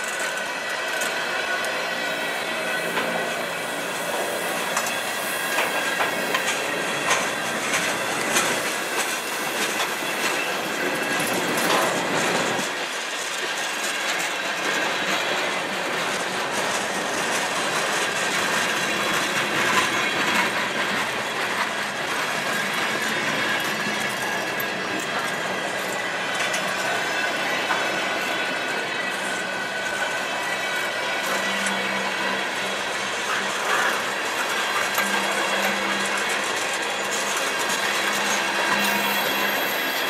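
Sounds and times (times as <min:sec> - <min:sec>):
train wheels rumbling on rail: 0:00.0 - 0:40.0
wheels clicking over rail joints: 0:00.0 - 0:40.0
wheels squealing: 0:22.3 - 0:40.0.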